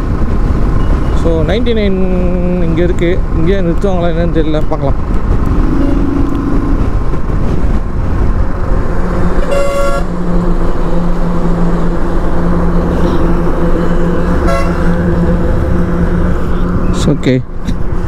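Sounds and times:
road noise: 0.0 - 18.0
motorcycle engine running: 5.0 - 17.0
vehicle horn toot: 9.4 - 10.2, 14.4 - 15.1.

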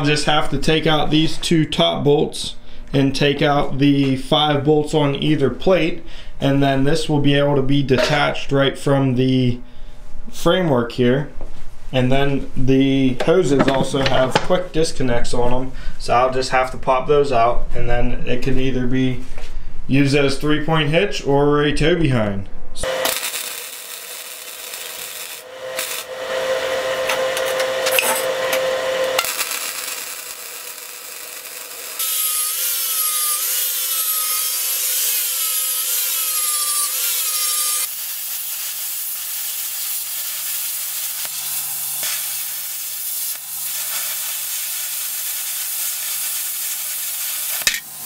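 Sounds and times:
angle grinder on steel: 22.8 - 37.9
plasma cutter cutting steel: 22.8 - 48.0
welder crackling: 22.8 - 48.0.

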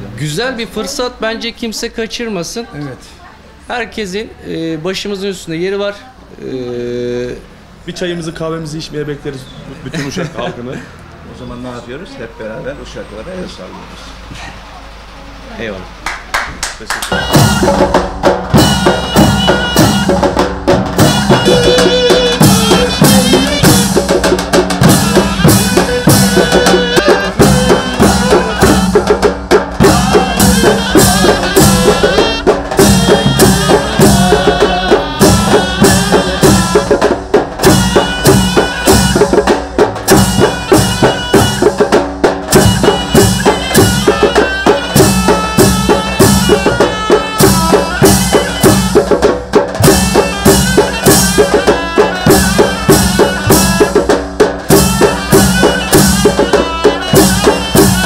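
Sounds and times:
bass drums beating: 16.5 - 58.0
reed pipes melody: 17.1 - 58.0.

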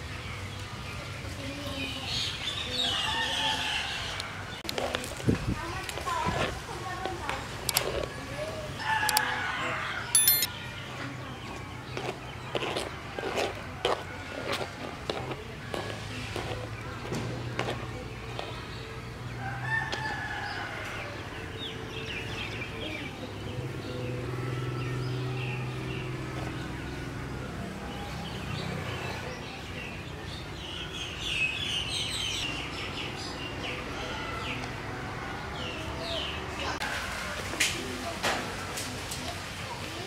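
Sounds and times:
rooster crowing: 19.4 - 21.2.

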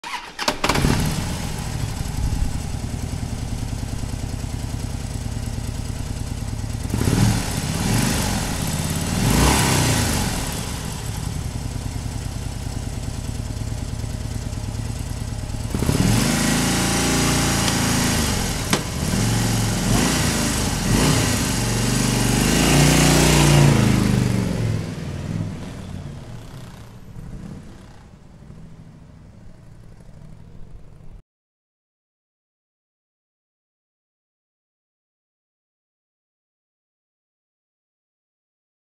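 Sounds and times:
motorcycle engine revving: 0.0 - 31.2.

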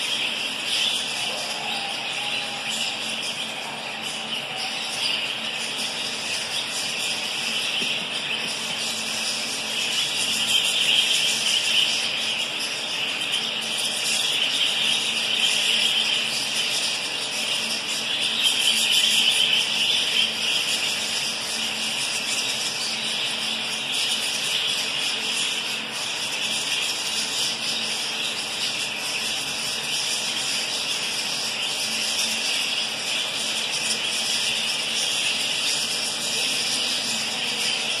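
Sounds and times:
budgerigars chattering: 0.0 - 38.0.

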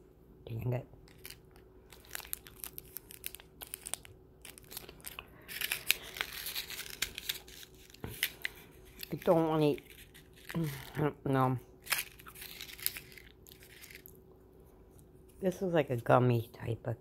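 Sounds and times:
plastic packaging crinkling: 1.0 - 11.2, 11.8 - 14.2.

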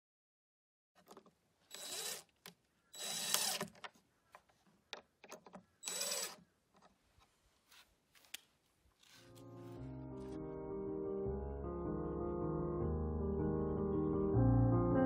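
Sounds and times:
cordless drill whine: 1.7 - 2.3, 3.0 - 3.7, 5.8 - 6.4
small clicks and knocks: 3.3 - 5.7.

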